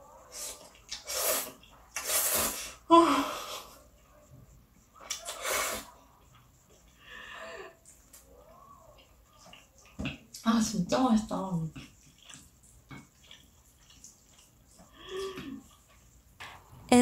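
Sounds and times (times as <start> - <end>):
person slurping noodles: 0.3 - 2.9, 5.1 - 6.0.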